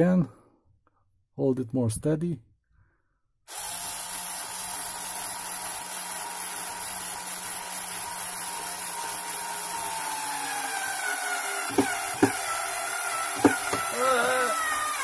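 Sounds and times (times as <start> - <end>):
cordless screwdriver whining: 3.5 - 15.0.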